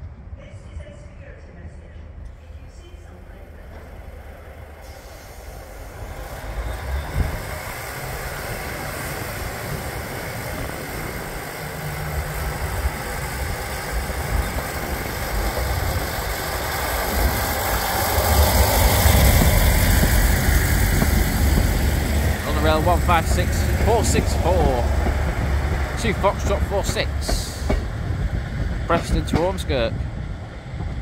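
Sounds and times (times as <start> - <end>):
diesel train engines rumbling: 0.0 - 31.0.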